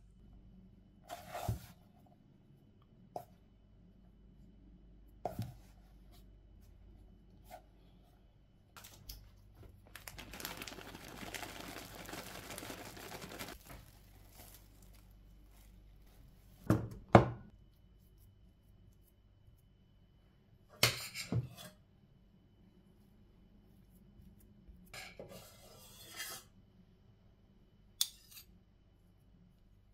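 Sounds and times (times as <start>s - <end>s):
almonds poured from a packet: 9.9s - 15.1s.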